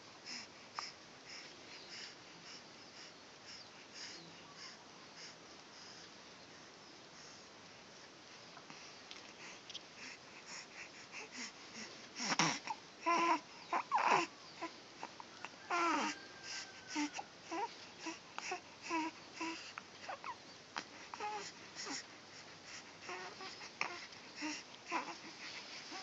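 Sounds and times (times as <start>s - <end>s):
baby squeaking and cooing: 12.3s - 14.7s, 15.7s - 18.2s.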